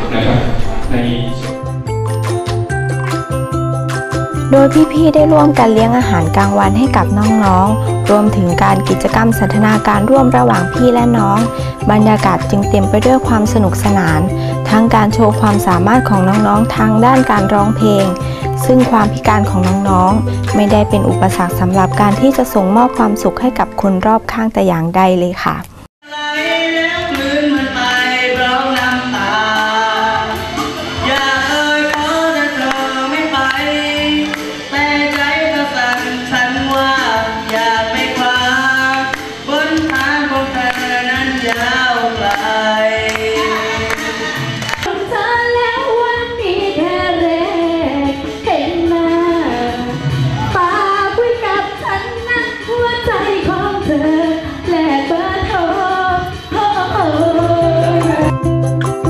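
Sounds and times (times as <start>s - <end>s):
backing music: 0.0s - 24.3s, 26.0s - 59.0s
young woman singing: 4.5s - 23.6s, 26.0s - 58.6s
person singing into microphone: 26.0s - 58.6s.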